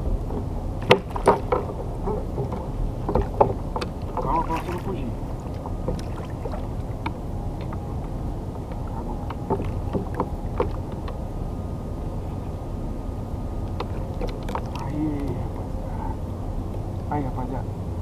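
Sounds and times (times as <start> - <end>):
wind on microphone: 0.0 - 17.1
water rumble: 0.0 - 18.0
knocks and clicks of fishing tackle: 0.3 - 4.3, 8.7 - 11.2, 13.7 - 15.4.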